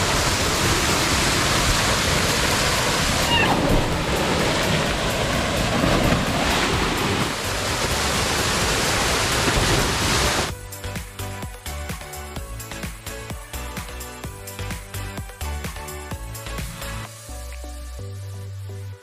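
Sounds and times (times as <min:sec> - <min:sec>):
waterfall pouring: 0:00.0 - 0:10.5.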